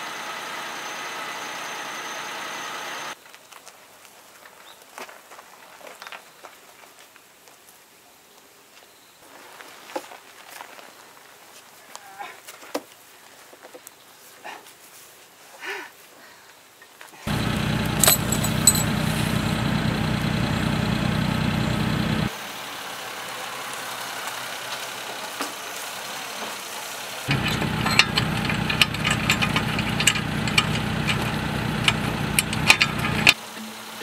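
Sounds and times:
vehicle engine idling: 17.3s - 33.9s
sharp clicks and knocks: 27.3s - 33.4s.

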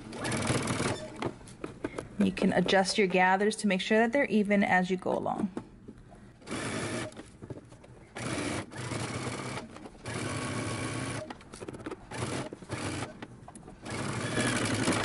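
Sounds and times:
electric sewing machine stitching: 0.1s - 1.2s, 6.4s - 7.2s, 8.2s - 13.2s, 13.8s - 15.0s.

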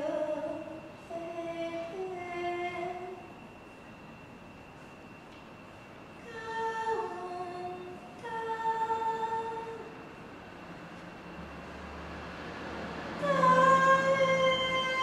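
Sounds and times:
woman singing long notes: 0.0s - 3.2s, 6.2s - 9.9s, 13.2s - 15.0s.

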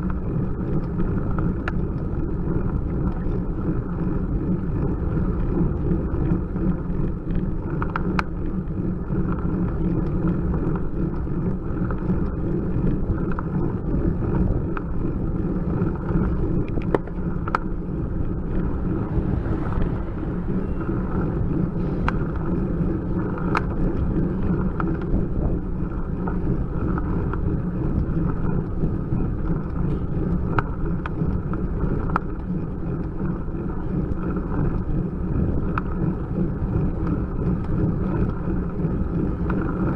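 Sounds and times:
wind and road rumble: 0.0s - 39.9s
car passing: 16.1s - 24.7s.

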